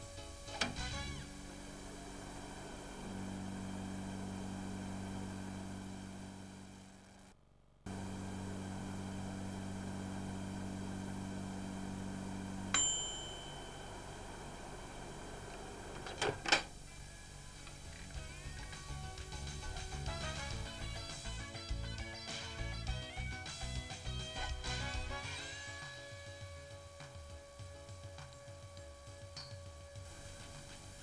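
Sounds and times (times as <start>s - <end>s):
microwave oven hum: 0.0s - 31.0s
microwave bell ding: 12.6s - 14.8s.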